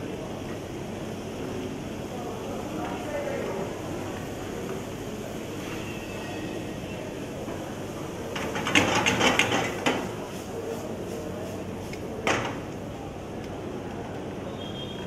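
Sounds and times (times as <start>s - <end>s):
spatula stirring in frying pan: 8.3s - 12.6s
pan and spatula knocking: 8.4s - 10.1s.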